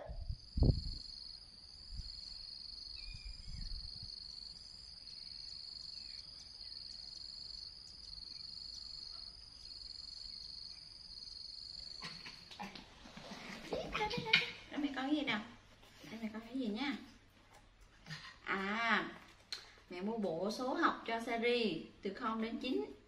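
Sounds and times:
insects trilling: 0:00.1 - 0:14.7.

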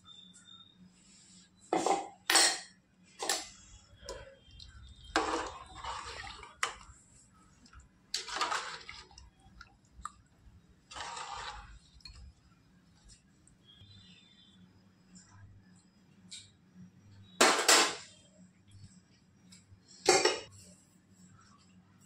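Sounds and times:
dishes clinking: 0:01.8 - 0:02.7
water splashing: 0:08.2 - 0:09.7.

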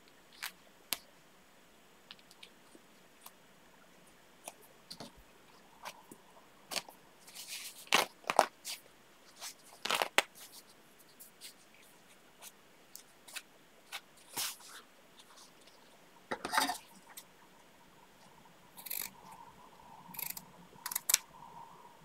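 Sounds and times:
fabric rustling: 0:06.7 - 0:15.9
small clicks: 0:18.8 - 0:19.2, 0:20.1 - 0:21.3.

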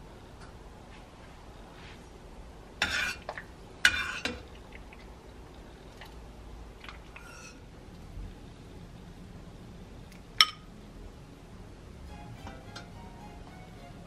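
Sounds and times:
spoon stirring and scraping pot: 0:02.8 - 0:05.0, 0:06.8 - 0:07.7.

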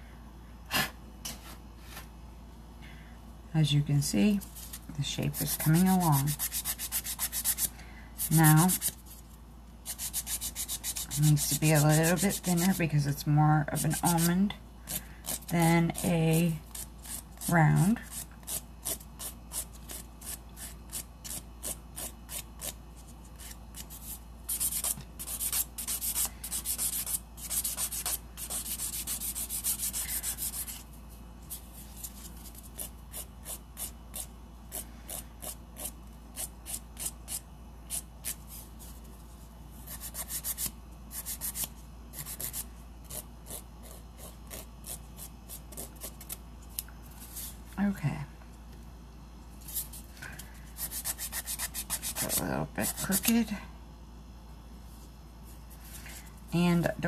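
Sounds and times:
nail file rasping on nail: 0:05.4 - 0:09.0, 0:09.8 - 0:12.8, 0:13.8 - 0:14.3, 0:14.9 - 0:22.8, 0:23.4 - 0:30.8, 0:32.8 - 0:38.4, 0:39.9 - 0:46.4, 0:50.8 - 0:53.4.

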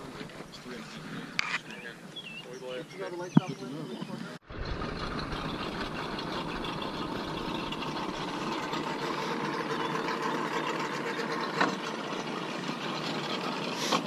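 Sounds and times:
engines idling: 0:04.4 - 0:14.0.

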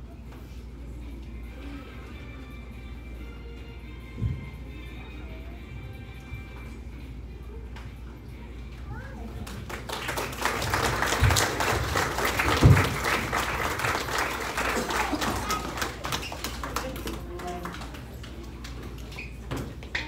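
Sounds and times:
audience applauding: 0:09.4 - 0:18.8.

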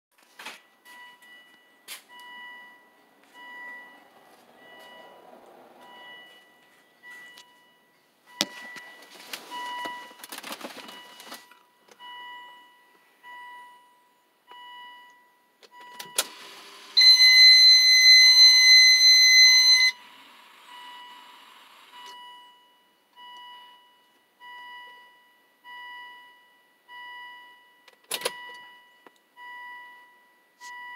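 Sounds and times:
high electronic beep: 0:17.0 - 0:20.0.

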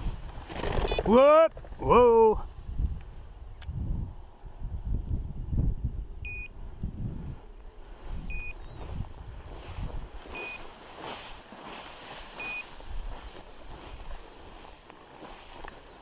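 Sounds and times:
wind on microphone: 0:00.0 - 0:00.9, 0:01.6 - 0:10.7, 0:12.6 - 0:14.7
dry grass swishing: 0:07.2 - 0:16.0.

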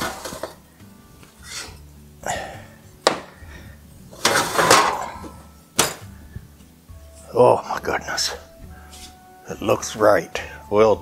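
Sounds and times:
pan rattling scrape: 0:00.0 - 0:00.6, 0:04.1 - 0:05.3
faint background music: 0:00.0 - 0:11.0.

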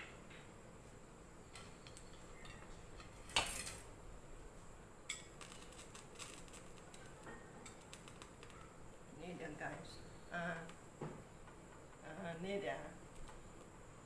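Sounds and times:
utensils and dishes clattering: 0:01.6 - 0:03.9.

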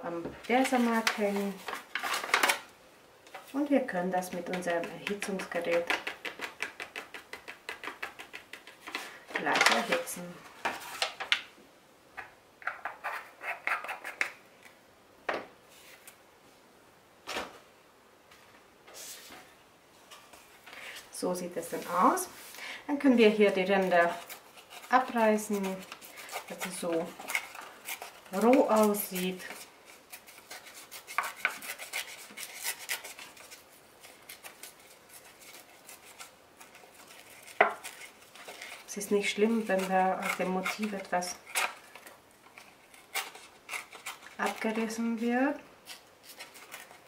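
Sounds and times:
paper and card rustling: 0:00.4 - 0:02.7, 0:03.3 - 0:11.5, 0:20.3 - 0:47.0.

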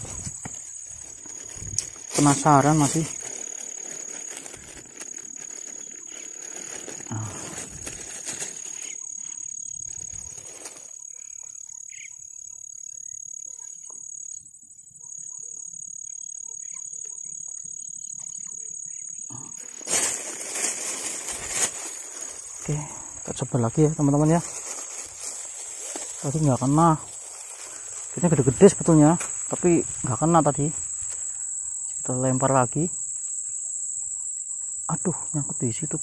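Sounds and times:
rustling and handling noise: 0:00.0 - 0:09.0, 0:09.9 - 0:11.0, 0:19.6 - 0:31.8
insects trilling: 0:00.0 - 0:36.0.

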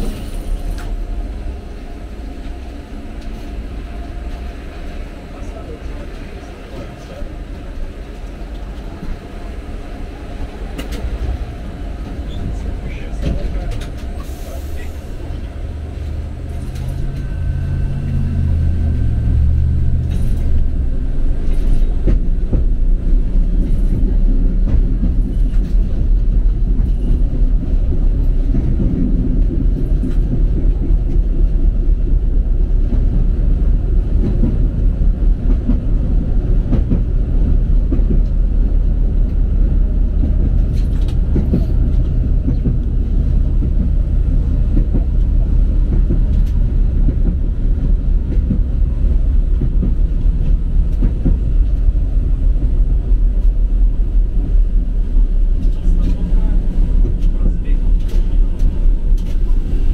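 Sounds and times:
tram wheels rumbling on rails: 0:00.0 - 0:59.9
faint whine: 0:14.6 - 0:21.8.

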